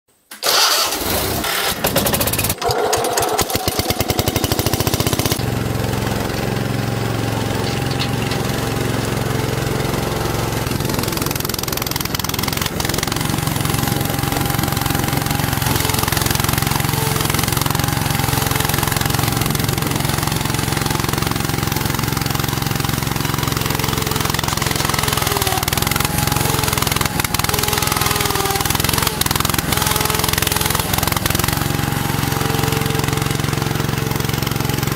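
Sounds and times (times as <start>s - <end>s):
loader digging into dirt: 0.4s - 34.9s
tractor engine running: 0.5s - 34.9s.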